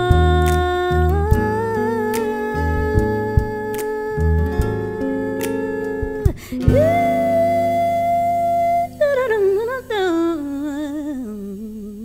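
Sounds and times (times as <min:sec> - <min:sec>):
song music: 0:00.0 - 0:10.5
woman singing with vibrato: 0:00.0 - 0:12.0.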